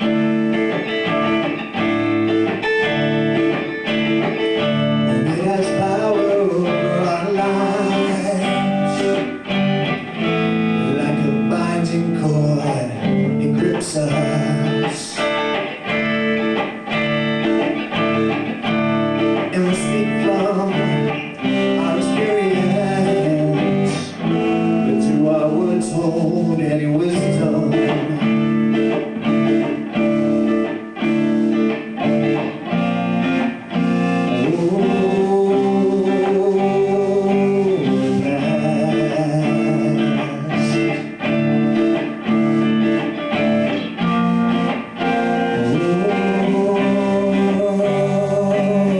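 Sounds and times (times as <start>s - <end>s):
live rock band playing: 0.0s - 48.9s.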